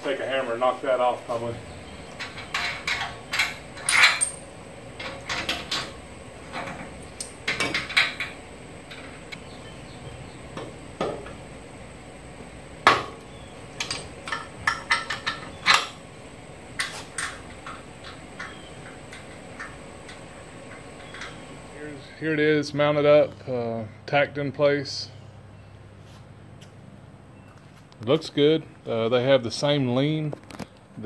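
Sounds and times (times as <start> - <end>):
metal clinks and knocks: 2.1 - 9.2, 13.8 - 16.0.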